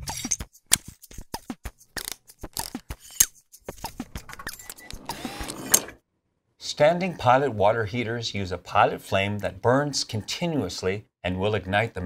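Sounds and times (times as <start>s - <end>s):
sharp mechanical clicks and ticks: 2.0s - 6.0s.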